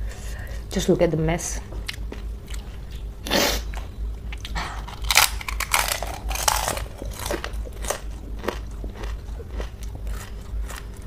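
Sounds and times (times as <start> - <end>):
crunching and chewing: 1.8 - 3.1, 3.7 - 11.0.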